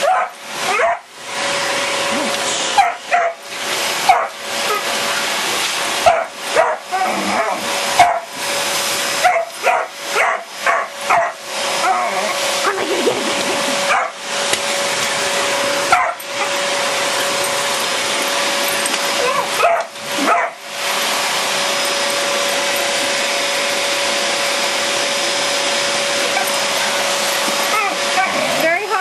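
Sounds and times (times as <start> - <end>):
dog yipping and whining: 0.0 - 1.1, 2.8 - 3.4, 6.0 - 8.3, 9.2 - 14.2, 15.9 - 16.6, 19.1 - 20.6, 26.3 - 26.6, 27.6 - 28.6
vacuum cleaner running: 0.0 - 29.0.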